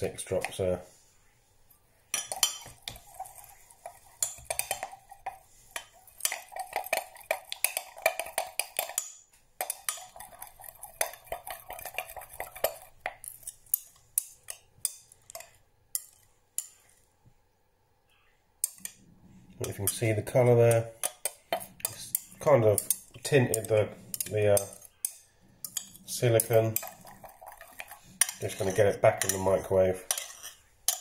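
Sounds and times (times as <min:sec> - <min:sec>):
stick scraping glass jug: 0:19.6 - 0:31.0.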